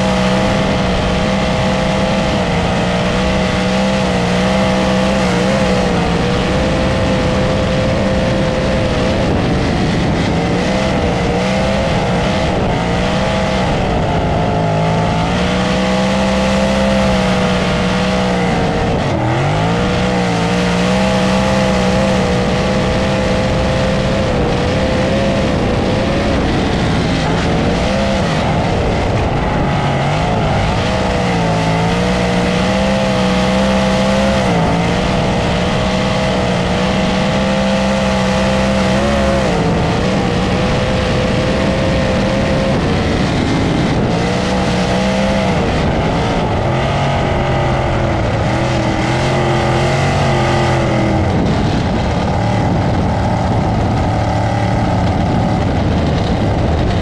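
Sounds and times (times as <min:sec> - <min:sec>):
race car engine at high revs: 0:00.0 - 0:57.0
wind rush: 0:00.0 - 0:57.0.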